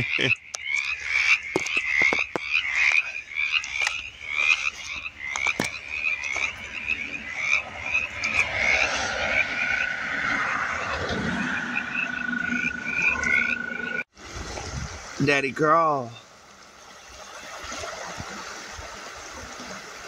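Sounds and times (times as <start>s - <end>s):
frogs calling: 0.0s - 14.1s, 16.0s - 16.4s.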